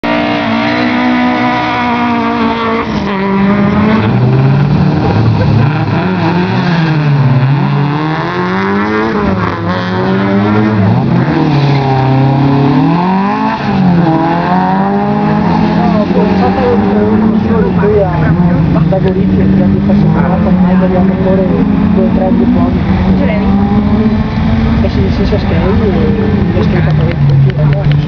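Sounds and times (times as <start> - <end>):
race car engine revving: 0.0 - 28.0.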